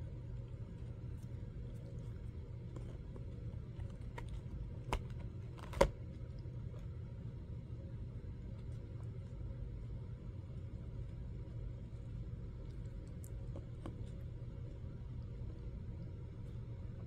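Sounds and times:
steady low hum: 0.0 - 17.0
chewing ice cream bar: 10.4 - 17.0.

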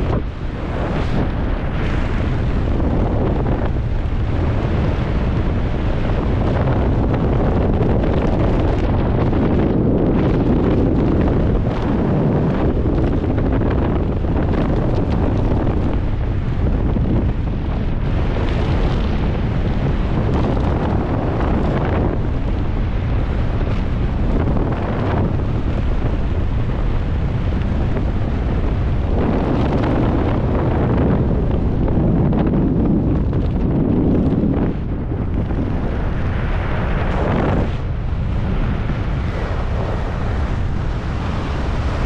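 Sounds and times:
wind buffeting microphone: 0.0 - 42.0.

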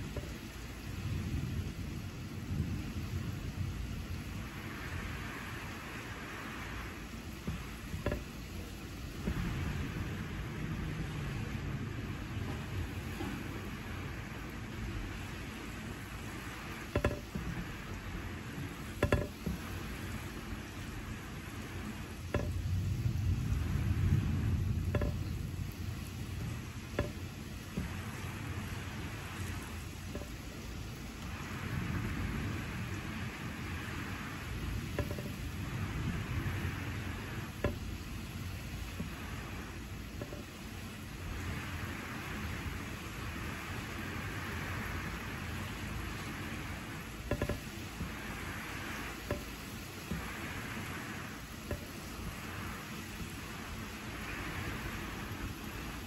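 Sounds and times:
low rumble of thunder: 0.0 - 16.6, 19.6 - 30.2, 30.8 - 38.2
sharp drip-like ticks: 0.0 - 56.0
steady rain: 0.0 - 56.0
drops ticking on a surface: 16.9 - 17.6, 18.9 - 19.7, 24.7 - 28.4, 34.9 - 35.4, 47.2 - 48.2.

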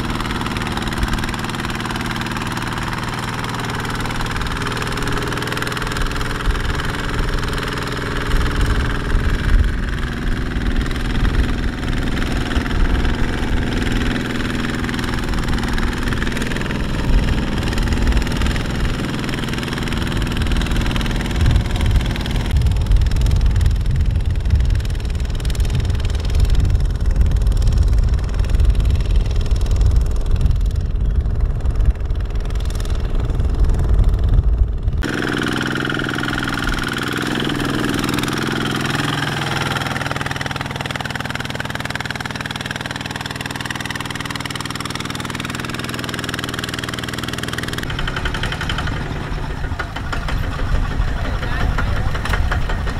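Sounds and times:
diesel engine running under load: 0.0 - 52.9.

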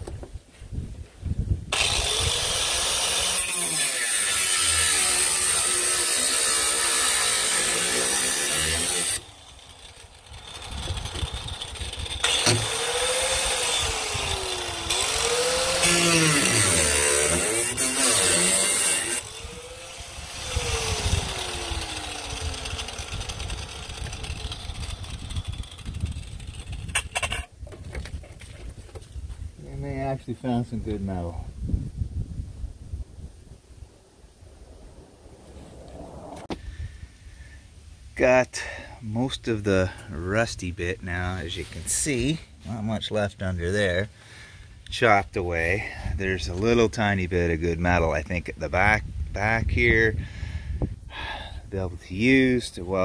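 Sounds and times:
angle grinder cutting metal: 1.7 - 27.5.

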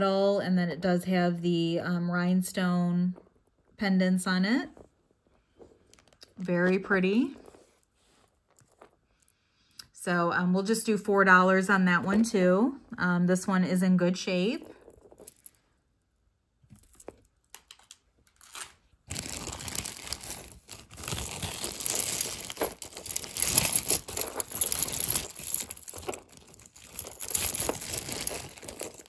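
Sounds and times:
plastic bag crinkling: 5.5 - 9.3, 16.8 - 29.0.

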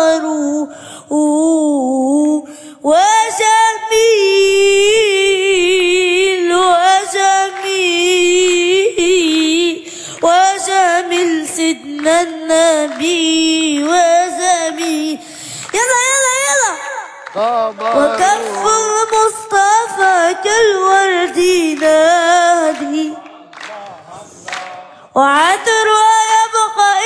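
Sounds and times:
boy singing into a microphone: 0.0 - 23.2, 25.0 - 27.0
short breaths: 0.7 - 1.1, 2.5 - 2.8, 9.8 - 10.2, 15.2 - 15.7.

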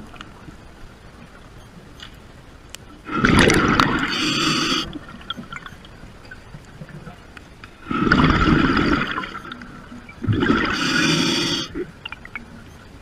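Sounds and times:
low underwater hum: 0.0 - 13.0
underwater gurgling and hissing: 3.0 - 5.7, 7.8 - 12.6.

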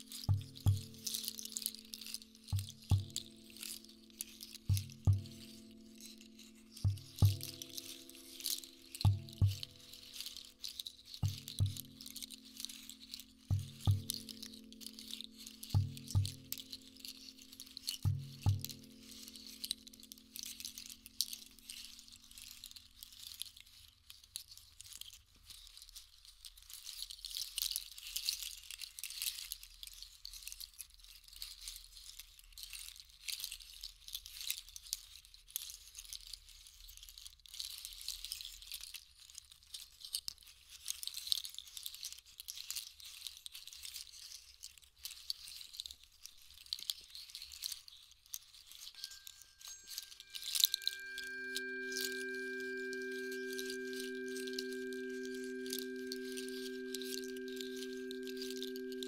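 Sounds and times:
low ringing struck instrument: 0.0 - 21.4, 49.0 - 59.0
shaken percussion rattling: 0.0 - 59.0.

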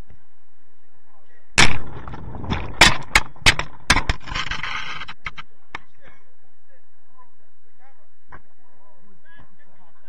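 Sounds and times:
loud thump: 1.6 - 5.4
sharp knocks: 1.6 - 5.8.

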